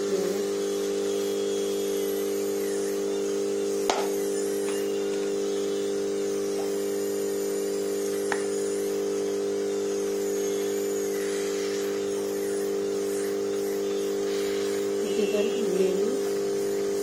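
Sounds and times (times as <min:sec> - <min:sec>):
steady electric hum: 0:00.0 - 0:17.0.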